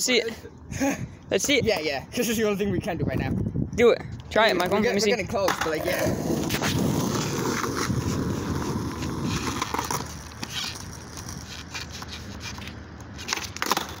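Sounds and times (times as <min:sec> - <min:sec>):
skateboard wheels rolling on asphalt: 0:04.2 - 0:14.0
skateboard tail clack: 0:04.6 - 0:14.0.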